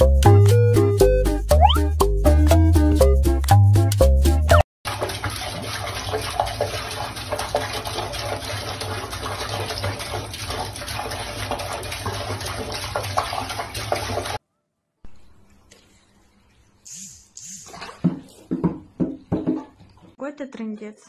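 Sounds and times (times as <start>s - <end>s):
faucet water running into sink: 4.9s - 14.4s.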